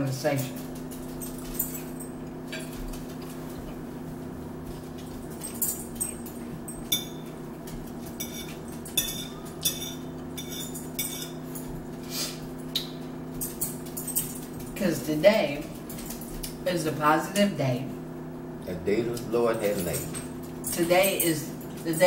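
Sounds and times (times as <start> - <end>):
steady low hum: 0.0 - 22.0
forks clinking on plates: 0.4 - 3.4, 5.0 - 12.0, 12.7 - 14.8, 19.6 - 22.0.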